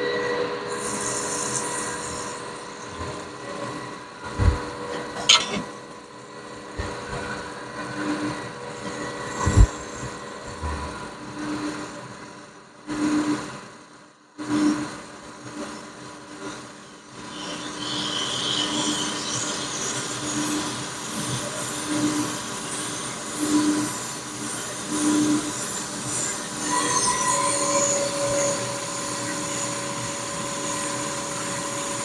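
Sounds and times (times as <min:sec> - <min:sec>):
machinery humming: 0:00.7 - 0:12.7
rubbing and scraping: 0:04.4 - 0:05.7.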